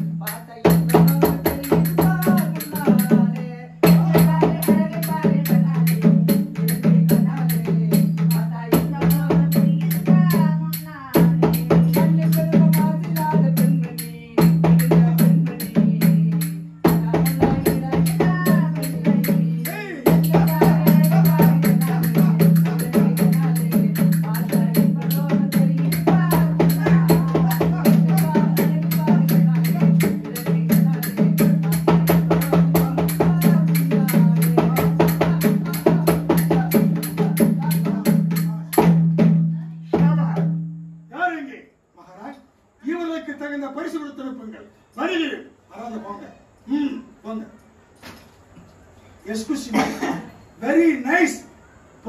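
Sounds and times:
barrel drum played in quick rhythm: 0:00.0 - 0:40.8.

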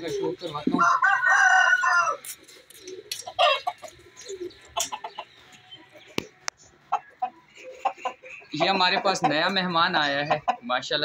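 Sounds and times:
chickens clucking and squawking: 0:00.0 - 0:11.0
rooster crowing: 0:00.8 - 0:02.3.

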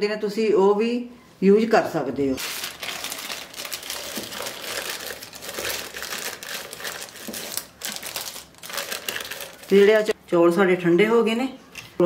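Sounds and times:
plastic bag crinkling: 0:02.4 - 0:10.2.

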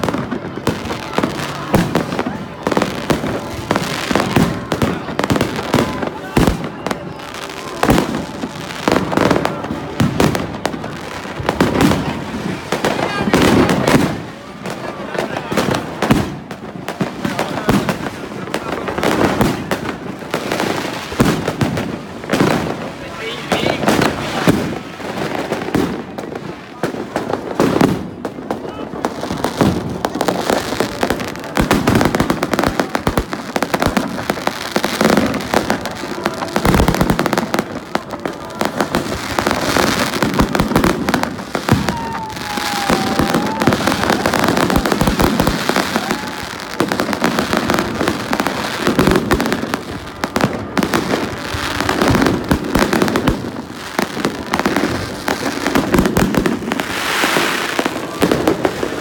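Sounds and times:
fireworks bangs and crackling: 0:00.0 - 0:59.0
firework whistle: 0:40.8 - 0:46.8.

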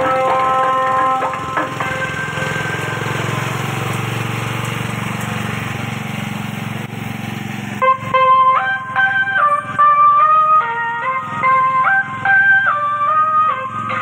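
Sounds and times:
vehicle engine running: 0:00.0 - 0:14.0.

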